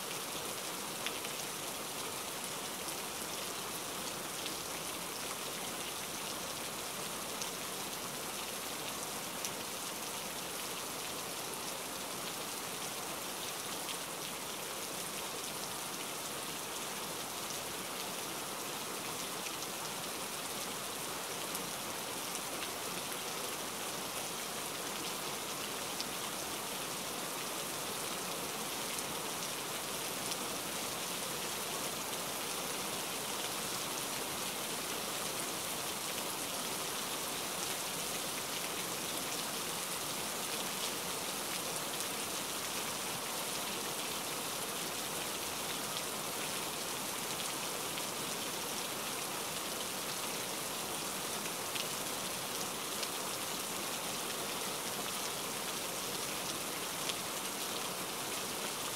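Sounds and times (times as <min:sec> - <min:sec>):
steady rain hiss: 0:00.0 - 0:58.9.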